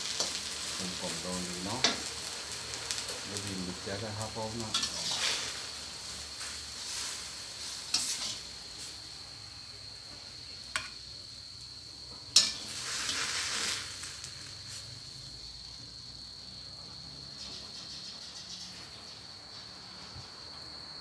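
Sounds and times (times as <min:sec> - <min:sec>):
vegetables sizzling in a wok: 0:00.0 - 0:21.0
spatula clanking on wok: 0:04.7 - 0:05.2, 0:12.4 - 0:12.7.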